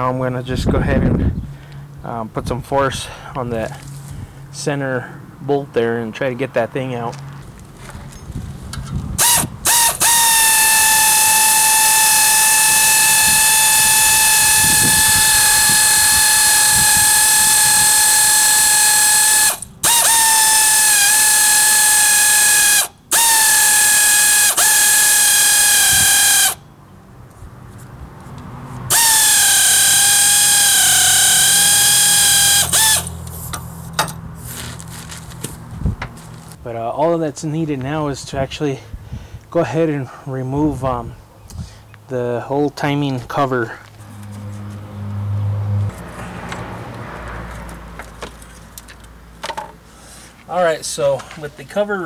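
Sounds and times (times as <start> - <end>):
air ratchet whining: 8.7 - 26.6, 28.9 - 34.7.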